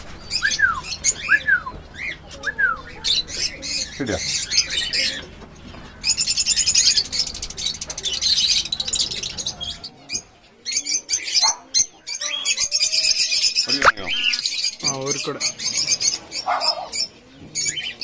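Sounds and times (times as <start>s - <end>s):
bird chick chirping: 0.0s - 18.0s.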